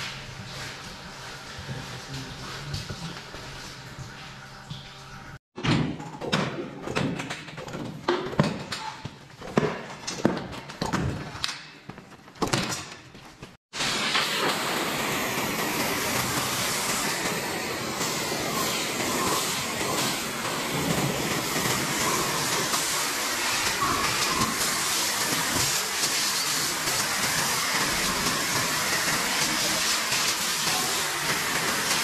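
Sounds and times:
water spraying from a hose: 0:13.8 - 0:32.0.

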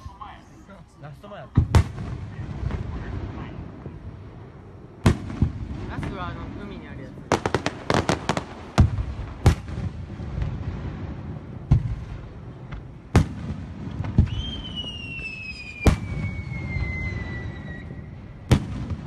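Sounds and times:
long falling whistle: 0:14.2 - 0:18.4.

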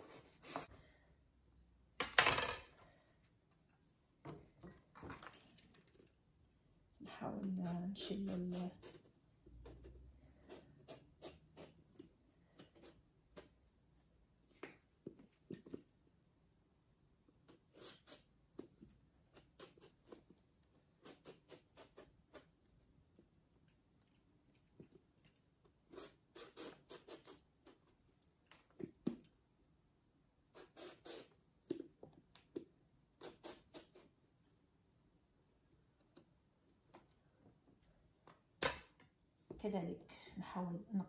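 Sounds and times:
peeler scraping eggplant skin: 0:25.8 - 0:28.0, 0:33.2 - 0:34.1.

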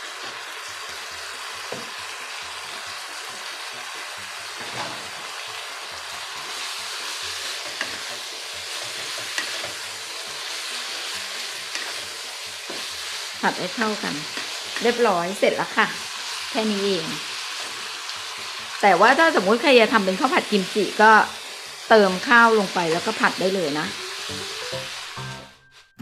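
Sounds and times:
food sizzling in a wok: 0:00.0 - 0:26.0
wooden spatula scraping: 0:06.4 - 0:13.3.

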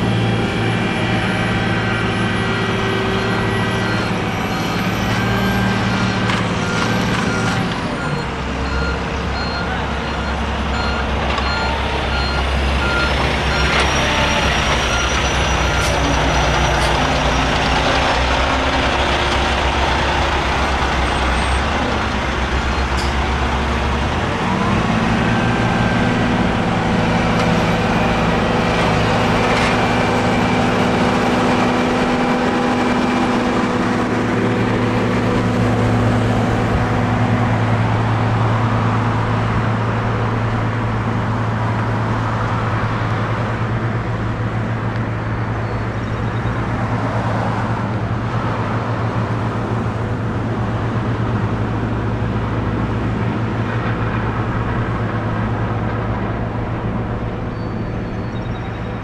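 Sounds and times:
heavy diesel engines running: 0:00.0 - 0:59.0
reversing beeper: 0:00.4 - 0:17.9.

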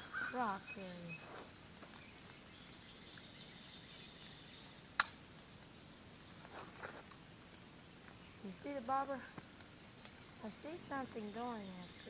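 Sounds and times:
insects trilling: 0:00.0 - 0:12.0
sharp click: 0:05.0 - 0:05.2.

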